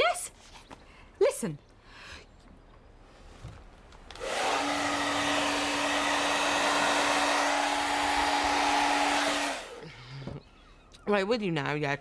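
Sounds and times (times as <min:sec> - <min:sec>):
small electric motor running: 0:04.2 - 0:09.8.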